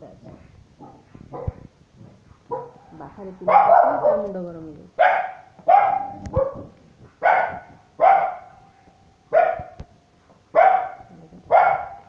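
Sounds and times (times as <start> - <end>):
dog barking: 0.8 - 1.6, 2.5 - 4.4, 5.0 - 8.6, 9.3 - 9.8, 10.6 - 12.0.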